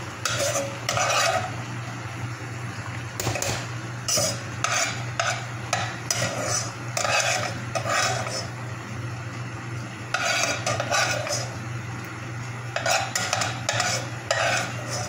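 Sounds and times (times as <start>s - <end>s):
low hum from stove: 0.0s - 15.0s
utensil scraping rice in a pan: 0.2s - 1.6s, 3.2s - 8.6s, 10.1s - 11.6s, 12.7s - 15.0s.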